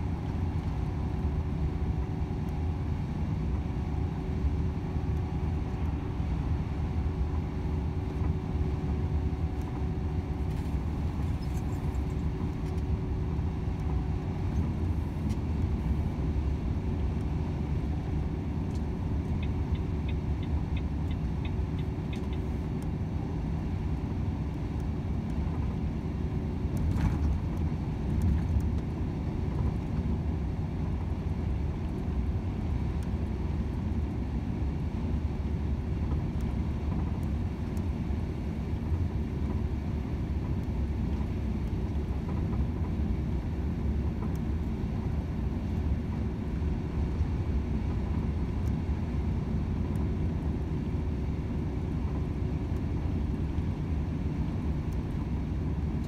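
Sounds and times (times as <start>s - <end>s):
road noise: 3.2s - 24.1s
light evenly spaced ticks: 18.7s - 22.9s.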